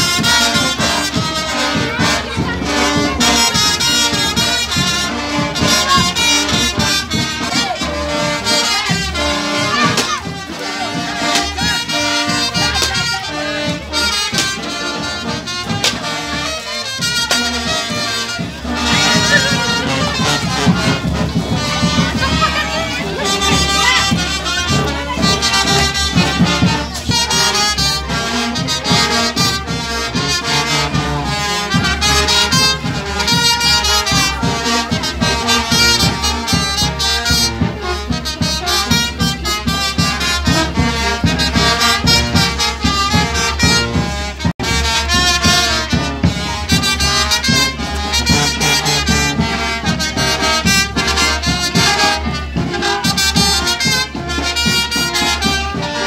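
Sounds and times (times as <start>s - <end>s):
brass band music: 0.0s - 56.0s.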